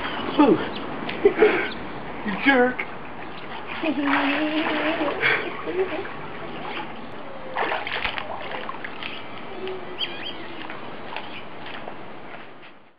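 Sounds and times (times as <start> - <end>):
water splashing in a pool: 3.2 - 11.8.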